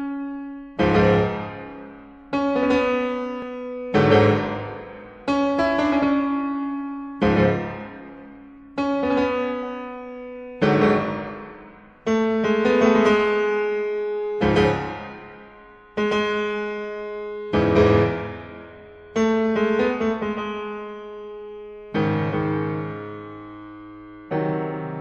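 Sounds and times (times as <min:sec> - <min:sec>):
classical piano chords: 0:00.0 - 0:25.0.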